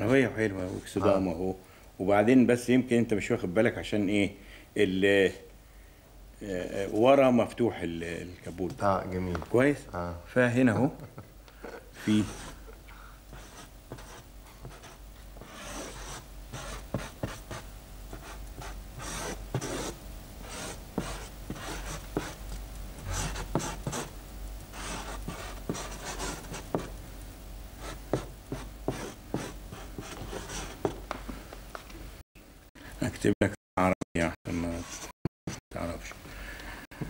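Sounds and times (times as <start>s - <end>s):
low steady hum: 0.0s - 33.2s
marker scratching on paper: 12.0s - 12.6s, 13.3s - 22.4s, 23.0s - 24.1s, 24.8s - 26.9s, 27.8s - 31.0s, 34.7s - 35.6s.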